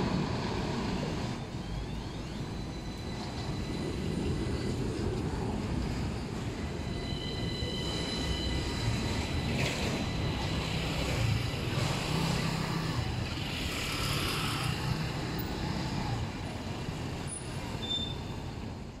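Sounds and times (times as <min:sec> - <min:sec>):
tram rolling on rails: 0:00.0 - 0:19.0
motor scooters passing: 0:08.6 - 0:17.8.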